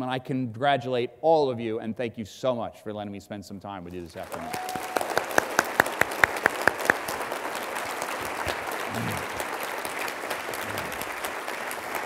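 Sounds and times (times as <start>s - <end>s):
audience applauding: 4.1s - 12.0s
loud close hand claps: 4.2s - 12.0s.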